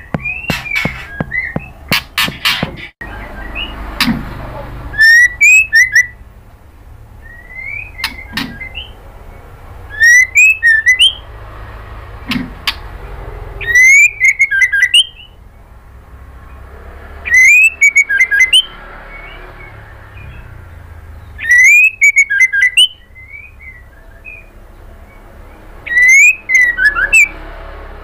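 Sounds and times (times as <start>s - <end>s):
bird singing whistled song: 0.0s - 1.8s, 3.1s - 3.8s, 4.9s - 6.2s, 7.2s - 9.0s, 9.9s - 11.2s, 13.6s - 15.4s, 17.3s - 20.6s, 21.2s - 27.3s.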